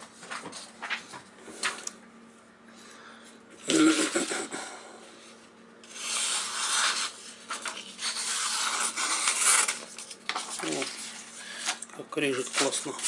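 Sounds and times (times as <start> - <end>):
knife slicing paper: 5.8 - 13.0
paper rustling: 6.1 - 13.0.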